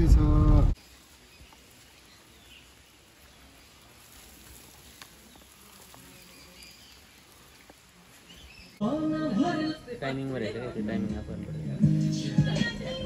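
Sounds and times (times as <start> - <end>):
light rain patter: 0.4 - 8.8.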